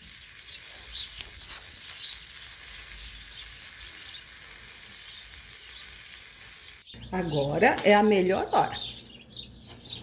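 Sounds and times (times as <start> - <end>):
food sizzling in a frying pan: 0.0 - 7.0.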